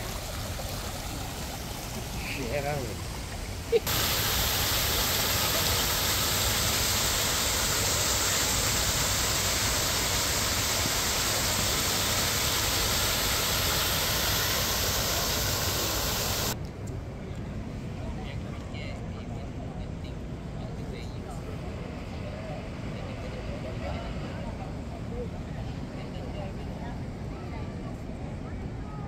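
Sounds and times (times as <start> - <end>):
waterfall rushing: 0.0 - 16.6.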